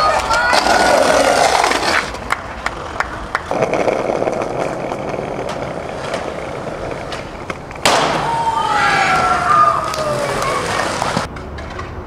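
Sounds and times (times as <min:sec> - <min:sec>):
skateboard clicks: 0:00.0 - 0:07.9
skateboard wheels rolling on concrete: 0:00.0 - 0:12.0
skateboard landing slam: 0:07.0 - 0:09.2.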